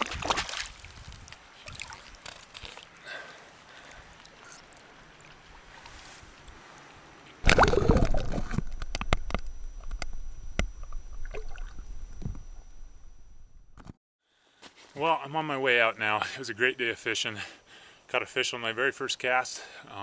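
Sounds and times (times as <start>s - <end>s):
lake water lapping: 0.0s - 8.6s
muffled underwater sloshing: 3.7s - 13.8s
sharp underwater knocks: 7.4s - 12.5s
microphone plunging underwater: 7.4s - 14.0s.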